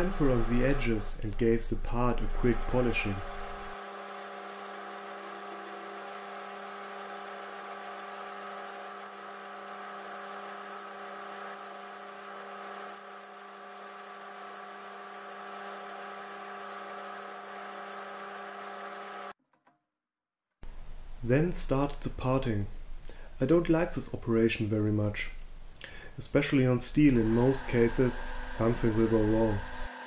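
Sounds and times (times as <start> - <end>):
lathe motor hum with whine: 0.0 - 1.4, 2.0 - 19.3, 27.1 - 30.0.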